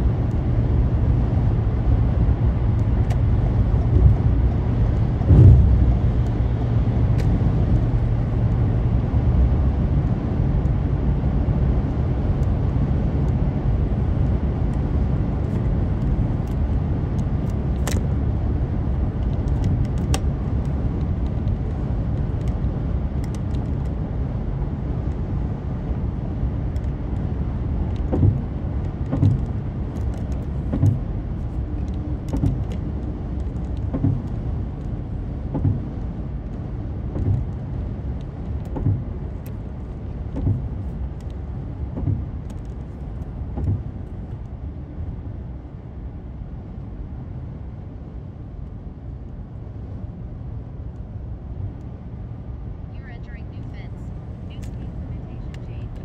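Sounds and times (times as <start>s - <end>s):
car tyres and engine rumble: 0.0s - 56.0s
short low thumps: 3.7s - 7.1s, 41.9s - 42.4s.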